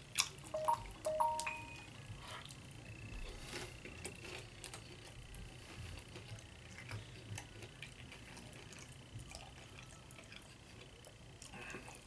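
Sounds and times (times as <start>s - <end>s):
person chewing chips: 3.2s - 12.0s.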